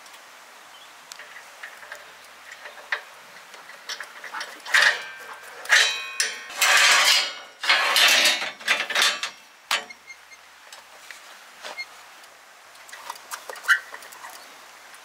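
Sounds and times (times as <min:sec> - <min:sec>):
metal clanking and scraping: 0:01.2 - 0:10.0.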